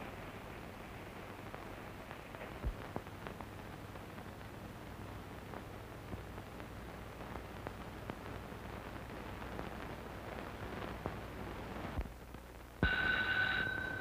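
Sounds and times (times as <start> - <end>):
faint crackles: 0.0 - 14.0
film soundtrack hiss: 0.0 - 14.0
low hum: 12.8 - 14.0.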